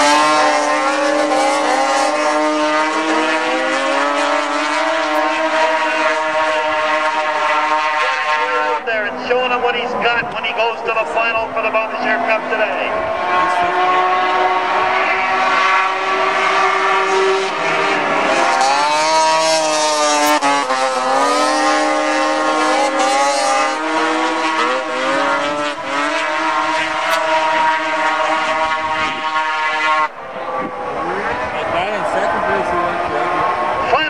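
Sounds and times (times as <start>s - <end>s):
snowmobile engines racing: 0.0s - 34.0s.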